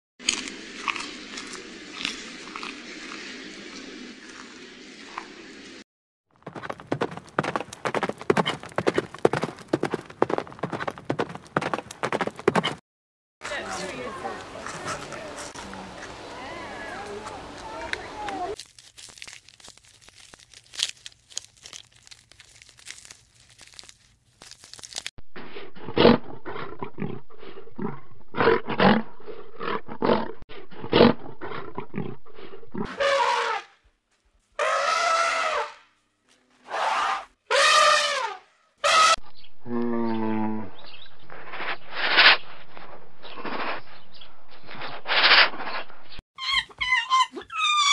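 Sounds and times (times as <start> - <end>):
lions growling: 25.4 - 32.9
lions roaring: 25.5 - 32.9.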